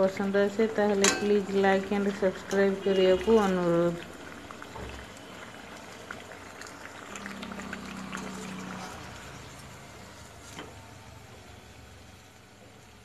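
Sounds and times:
fritters sizzling in hot oil: 0.0s - 13.0s
oil crackles: 2.0s - 11.2s.

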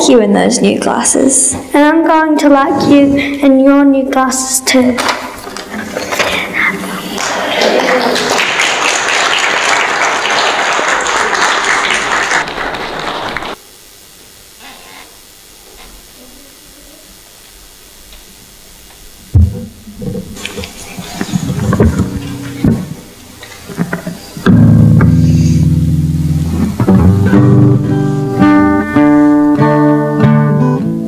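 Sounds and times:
audience applauding: 5.4s - 13.6s
loud thump: 19.3s - 20.4s.

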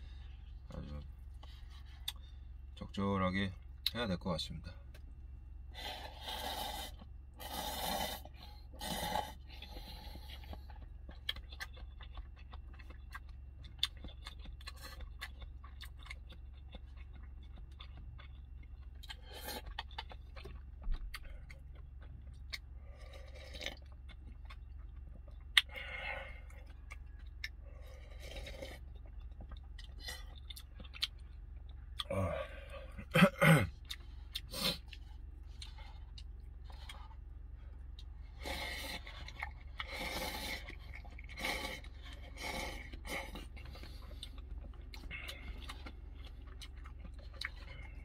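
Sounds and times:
low hum: 0.0s - 48.0s
slurping noodles: 5.8s - 10.5s, 38.4s - 43.5s
chewing clicks: 9.6s - 32.1s.

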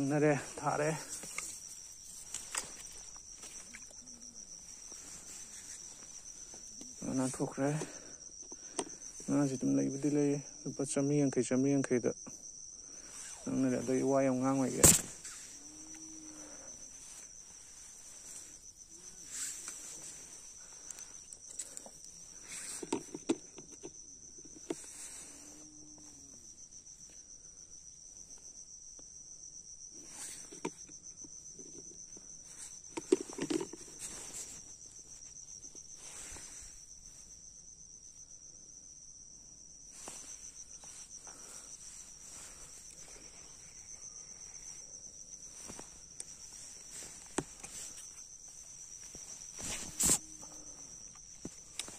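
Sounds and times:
crickets trilling: 0.0s - 51.9s
fishing tackle clicks and rustles: 1.0s - 4.0s, 20.8s - 24.8s, 32.6s - 34.6s.

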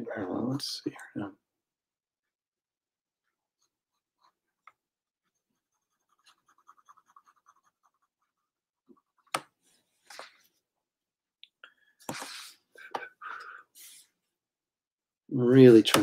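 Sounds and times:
pen scratching on paper: 5.3s - 9.4s.

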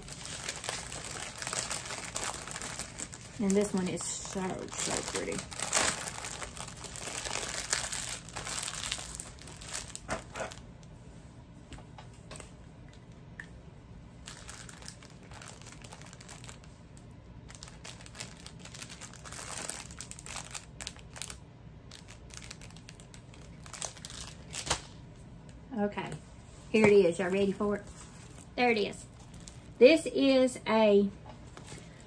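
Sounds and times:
packaging crinkling and rustling: 0.0s - 10.7s, 14.2s - 25.0s, 26.8s - 29.8s.

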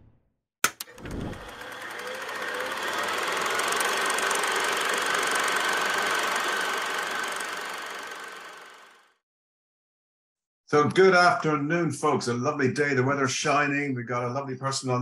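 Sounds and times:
sharp clicks: 0.6s - 1.5s
dense mechanical noise: 0.8s - 9.0s.

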